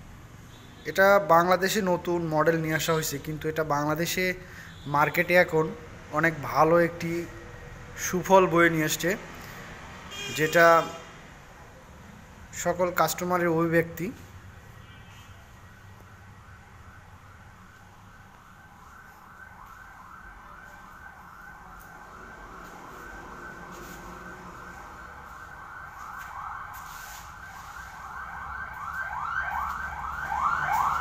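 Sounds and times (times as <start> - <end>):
emergency vehicle siren yelping: 15.4 - 31.0.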